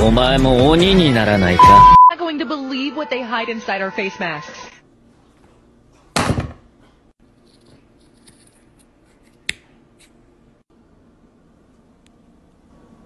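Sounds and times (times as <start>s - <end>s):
scissors snipping face mask: 7.9s - 10.2s.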